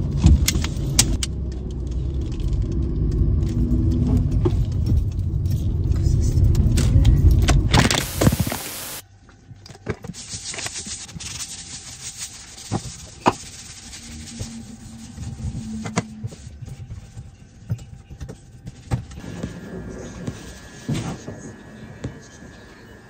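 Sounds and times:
car rumble: 0:00.0 - 0:09.0
rush of noise: 0:01.6 - 0:09.0.

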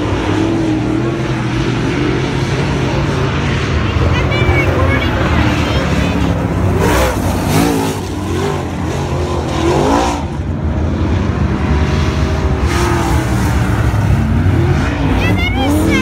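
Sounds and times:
race car engines revving: 0:00.0 - 0:16.0.

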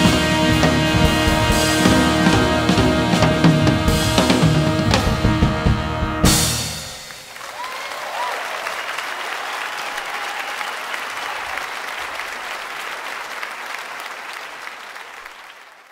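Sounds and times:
big band final chord: 0:00.0 - 0:07.2
audience applauding: 0:00.6 - 0:04.8, 0:07.0 - 0:15.9.

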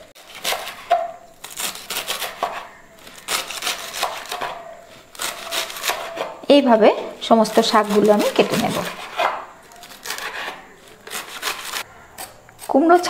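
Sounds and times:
knife chopping on wooden board: 0:00.3 - 0:02.7, 0:03.3 - 0:06.4, 0:07.8 - 0:12.3.

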